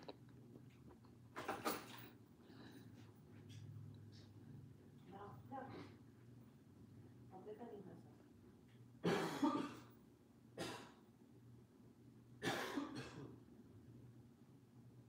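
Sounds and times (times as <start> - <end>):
woman coughing: 9.0 - 9.9, 10.6 - 11.0, 12.4 - 13.4.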